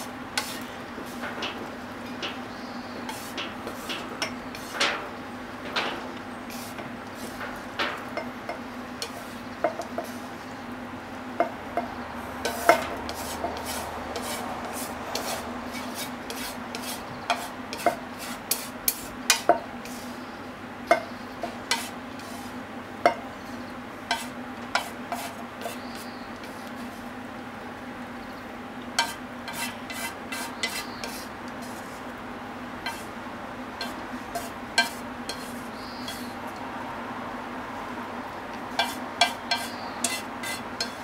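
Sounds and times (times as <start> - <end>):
utensil scraping frying pan: 0.0 - 10.2, 11.8 - 20.2, 20.9 - 23.2, 24.1 - 27.1, 29.0 - 32.1, 32.8 - 33.2, 33.8 - 36.4, 38.7 - 41.0.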